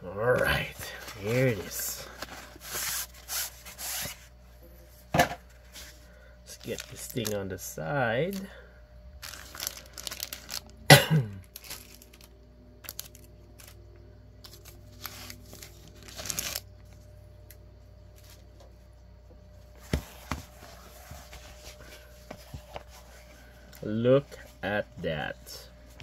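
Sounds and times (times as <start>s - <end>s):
plastic and foil wrappers crinkling: 0.5s - 3.5s, 6.5s - 7.6s, 9.2s - 13.8s, 14.4s - 17.0s.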